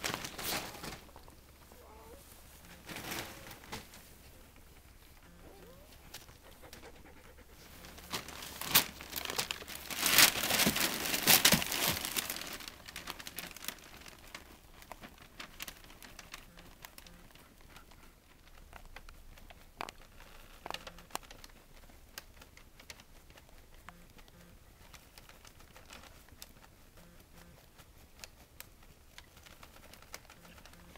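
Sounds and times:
paper bedding crinkling: 0.0 - 6.4, 7.6 - 30.9
dog panting: 5.3 - 8.2, 17.2 - 18.6.

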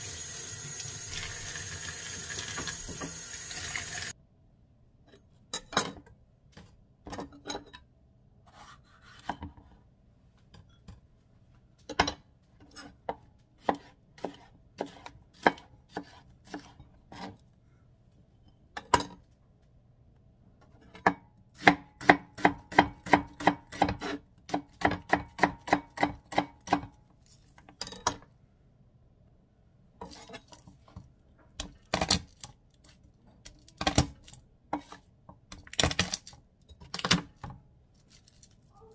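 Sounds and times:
knife chopping on cutting board: 13.6 - 17.3, 21.6 - 26.9.

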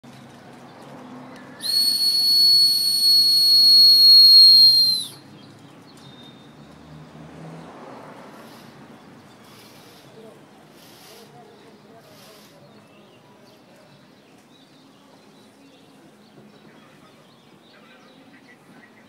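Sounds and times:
dog whistle tone: 1.6 - 5.2.

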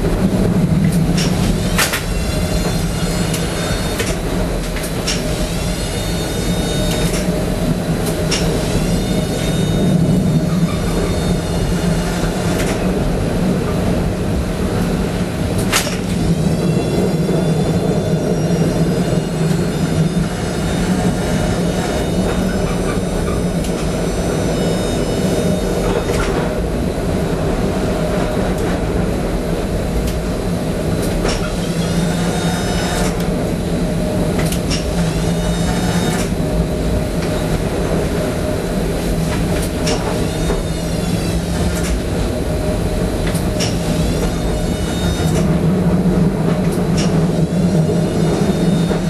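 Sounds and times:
tram wheels and motors humming: 0.0 - 49.0
high wheel squeals: 5.1 - 7.4, 8.3 - 12.6, 16.3 - 26.4, 31.2 - 33.2, 47.0 - 49.0.

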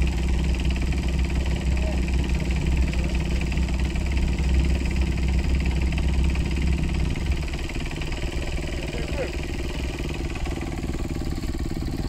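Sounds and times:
vehicle engines idling: 0.0 - 12.0.

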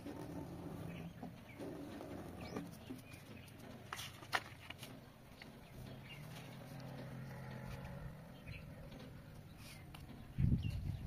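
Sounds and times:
paper rustling and creasing: 2.5 - 5.0.

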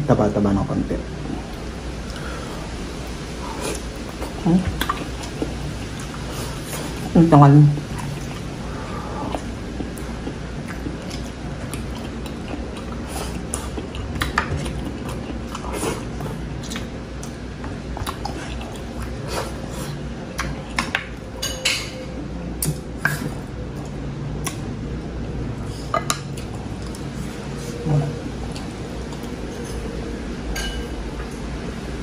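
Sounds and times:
steady low hum: 0.0 - 32.0
person chewing: 3.3 - 7.1, 7.8 - 21.2, 22.6 - 24.7, 25.6 - 30.1
dishes clinking: 20.8 - 22.2, 30.5 - 31.3.

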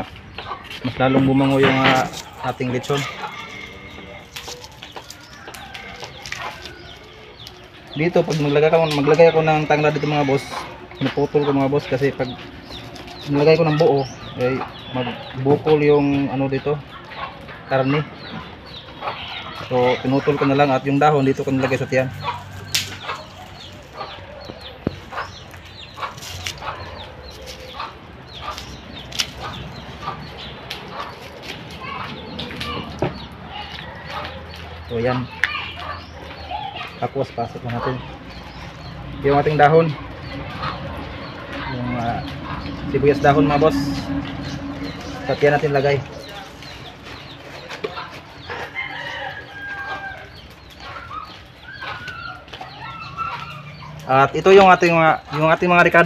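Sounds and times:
chickens clucking: 0.0 - 56.0
rooster crowing: 1.6 - 7.4, 19.0 - 25.3, 33.4 - 34.6, 37.8 - 54.1.

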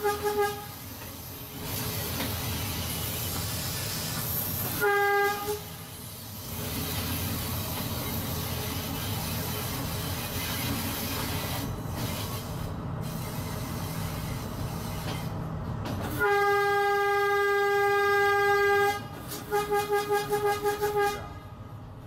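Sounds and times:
locomotive horn: 0.0 - 0.8, 4.8 - 5.8, 16.1 - 21.6
train rumbling: 0.0 - 22.0.

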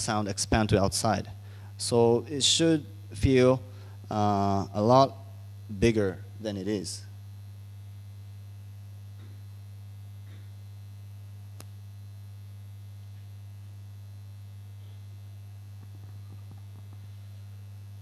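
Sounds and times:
low electrical mains hum: 0.0 - 18.0
faint click: 11.6 - 11.8.

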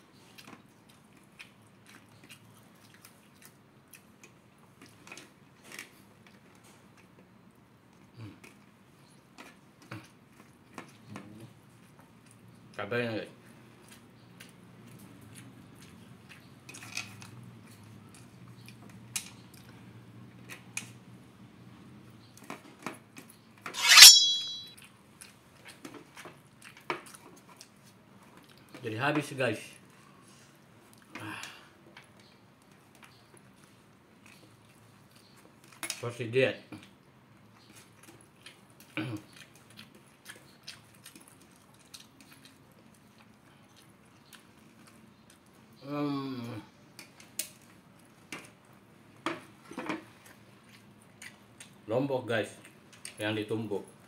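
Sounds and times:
person chewing: 0.2 - 7.2, 13.7 - 20.6, 24.8 - 28.8, 36.7 - 45.8, 50.1 - 51.8
sharp ringing sound: 23.8 - 24.8.

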